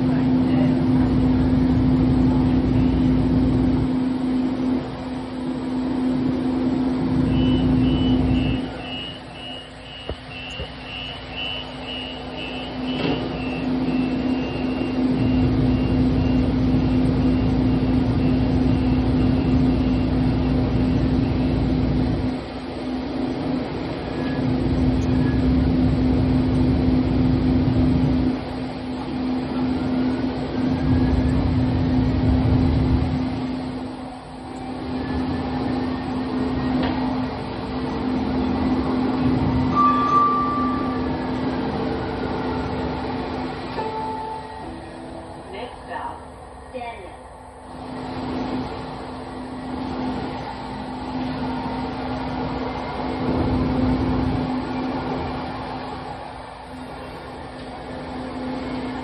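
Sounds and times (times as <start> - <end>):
light rail vehicle humming: 0.0 - 59.0
quick high beeps: 7.3 - 16.5.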